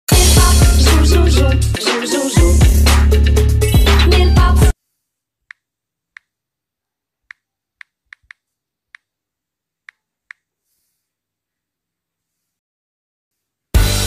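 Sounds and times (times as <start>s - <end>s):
music: 0.1s - 4.8s, 13.7s - 14.0s
phone keyboard clicks: 7.8s - 8.4s.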